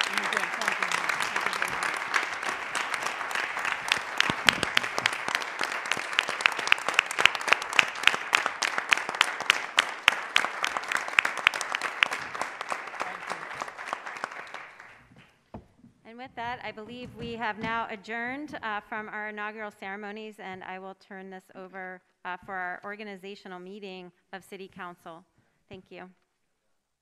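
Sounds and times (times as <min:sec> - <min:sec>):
audience applauding: 0:00.0 - 0:15.4
close loud hand claps: 0:00.0 - 0:15.4.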